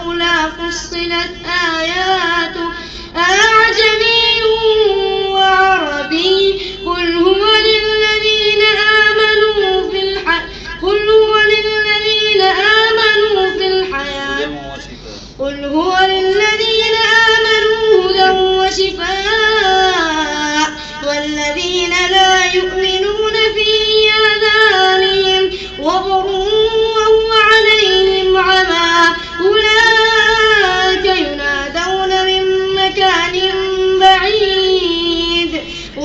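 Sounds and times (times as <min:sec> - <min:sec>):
person chanting recitation: 0:11.5 - 0:35.6.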